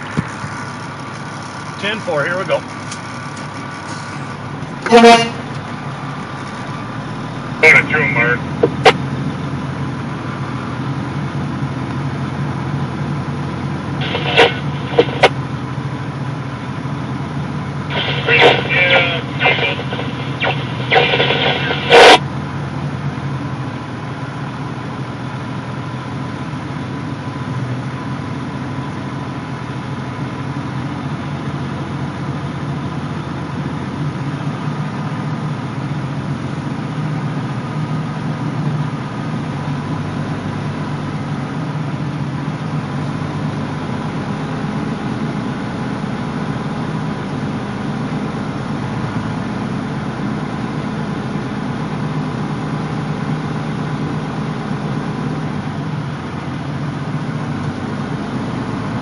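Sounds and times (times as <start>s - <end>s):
diesel engine running: 0.0s - 59.0s
loud burst of noise: 14.0s - 15.4s, 17.9s - 22.2s.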